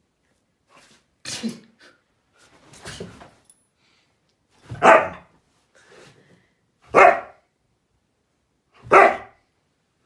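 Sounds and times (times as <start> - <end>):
dog barking: 4.8 - 5.3, 6.9 - 7.4, 8.8 - 9.4.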